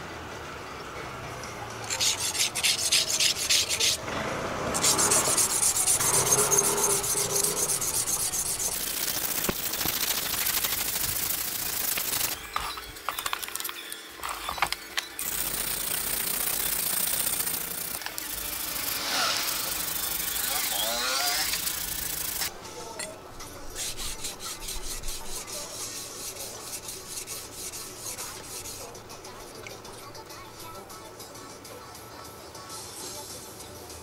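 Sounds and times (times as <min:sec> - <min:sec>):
knife blade scraping on whetstone: 0:01.9 - 0:04.0, 0:04.8 - 0:09.5, 0:23.7 - 0:28.9.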